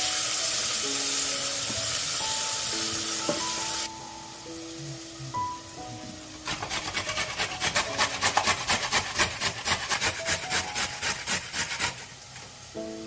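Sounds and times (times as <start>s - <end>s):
rasping strokes on wooden board: 6.4s - 12.1s.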